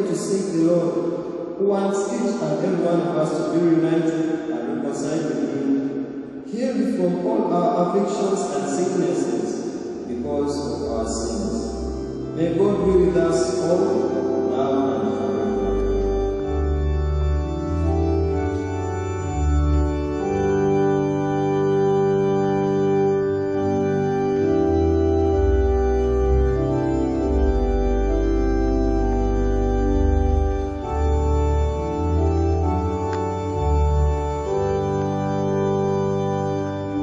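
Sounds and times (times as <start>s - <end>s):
organ chords: 0.0s - 37.0s.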